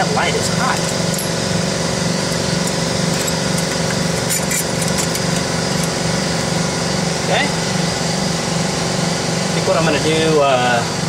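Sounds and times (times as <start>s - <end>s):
motor humming with pulsing: 0.0s - 11.0s.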